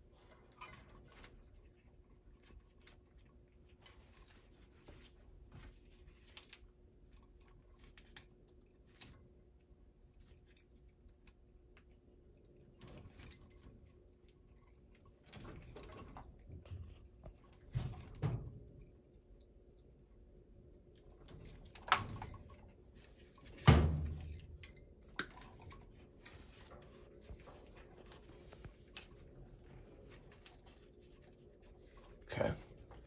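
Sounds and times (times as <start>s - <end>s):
clicks and rustles of wire strippers: 0.2s - 20.1s.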